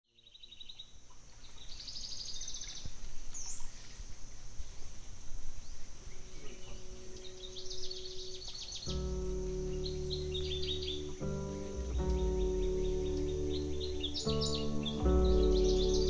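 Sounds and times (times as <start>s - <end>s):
insect drone: 0.8s - 16.0s
low steady tone: 5.3s - 16.0s
birds trilling and calling: 5.6s - 16.0s.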